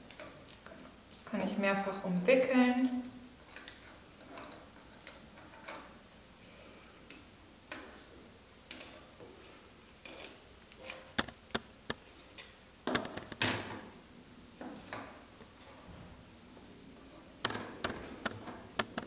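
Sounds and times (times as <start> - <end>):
sharp wooden clicks: 11.1 - 12.0, 17.4 - 19.0.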